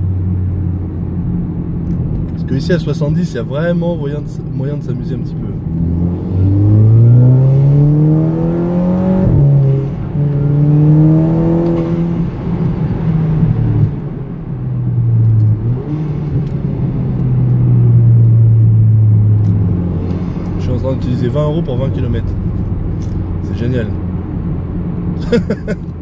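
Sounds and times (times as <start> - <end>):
car engine accelerating: 5.4 - 26.0.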